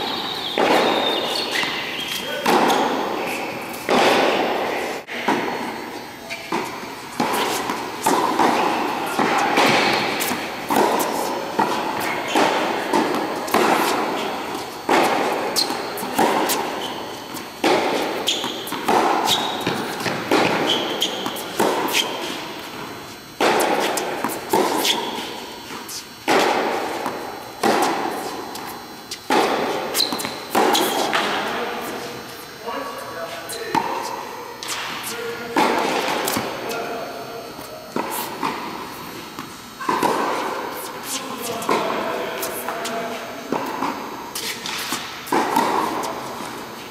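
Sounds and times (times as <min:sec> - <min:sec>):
ball bouncing on hard court: 0:06.3 - 0:22.8, 0:26.2 - 0:32.0, 0:38.0 - 0:41.9, 0:43.5 - 0:46.2
tennis ball struck by rackets: 0:06.4 - 0:17.0, 0:17.6 - 0:22.6, 0:23.4 - 0:32.0, 0:37.9 - 0:41.9, 0:43.5 - 0:46.6.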